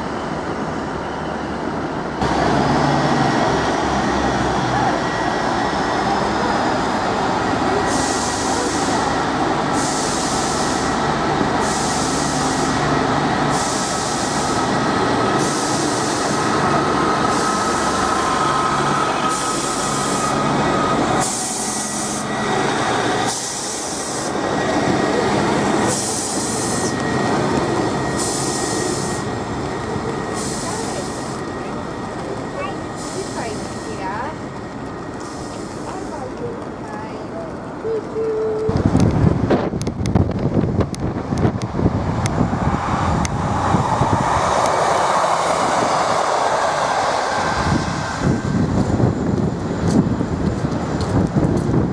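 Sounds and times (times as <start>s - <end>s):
diesel train engine drone: 0.0s - 51.9s
hiss: 9.7s - 11.0s, 11.6s - 12.8s, 13.4s - 14.7s, 15.4s - 16.4s, 21.2s - 22.3s, 25.9s - 27.0s, 28.2s - 29.3s
wheels running on rails: 10.6s - 42.5s.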